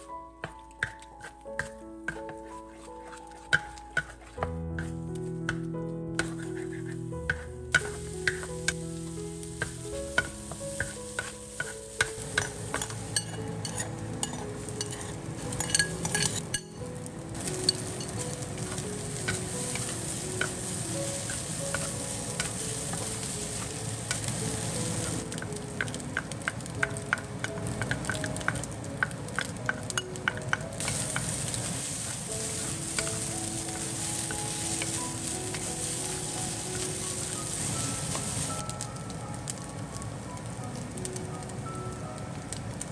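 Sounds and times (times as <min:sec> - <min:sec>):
rice sizzling in a wok: 0:00.0 - 0:42.9
wooden spatula scraping a pan: 0:00.8 - 0:05.1, 0:06.2 - 0:08.6, 0:09.6 - 0:16.8.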